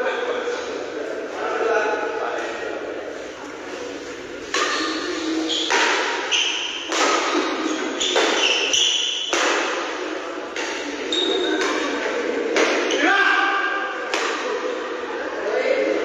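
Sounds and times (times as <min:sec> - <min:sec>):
shoes squeaking on court floor: 0:04.6 - 0:09.3, 0:10.7 - 0:11.9
shuttlecock hit by rackets: 0:05.7 - 0:06.2, 0:06.8 - 0:12.9.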